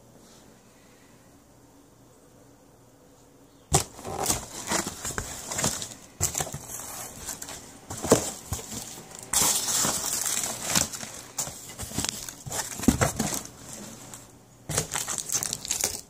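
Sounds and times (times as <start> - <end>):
packing peanuts rustling: 3.7 - 16.0.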